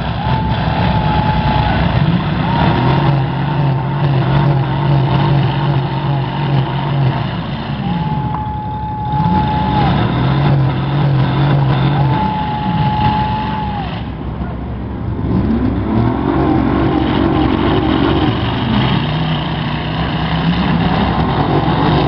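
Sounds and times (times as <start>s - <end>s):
car engines revving: 0.0s - 22.0s
steady high whine: 0.0s - 22.0s.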